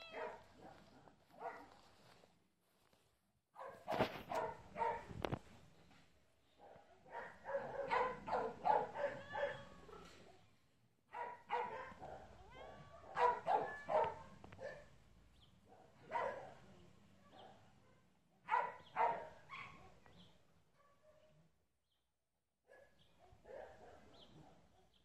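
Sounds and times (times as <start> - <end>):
dog barking: 0.0 - 1.8, 3.6 - 5.1, 6.6 - 10.1, 11.1 - 14.9, 15.7 - 16.6, 18.4 - 19.9, 22.7 - 25.0.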